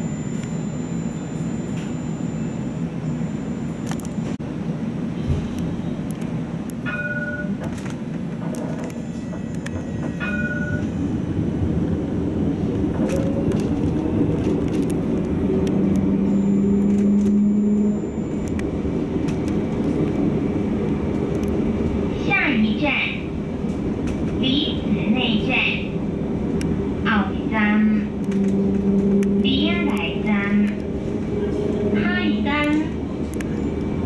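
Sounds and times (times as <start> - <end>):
tram wheels rumbling on rail: 2.8 - 34.0.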